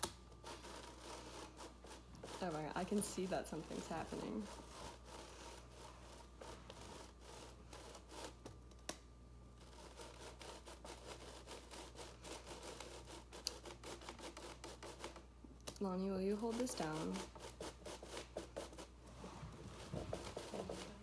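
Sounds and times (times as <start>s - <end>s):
paper rubbing and scratching on sand: 0.4s - 8.4s, 16.3s - 21.0s.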